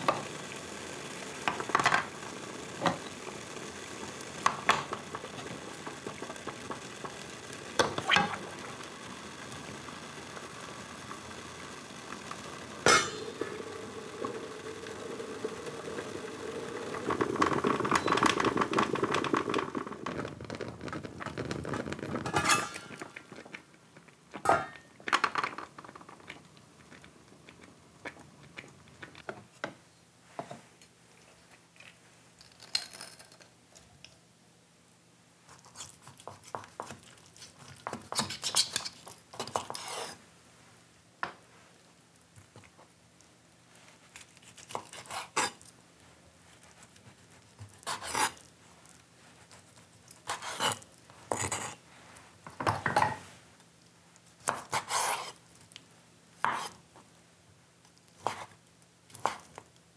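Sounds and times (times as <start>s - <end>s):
fork scraping shells: 21.5s - 23.6s, 35.6s - 40.2s, 44.2s - 45.7s, 46.8s - 48.5s, 49.6s - 51.8s
knife on wooden cutting board: 47.9s - 48.4s, 50.3s - 51.8s, 54.4s - 55.4s, 56.4s - 56.8s.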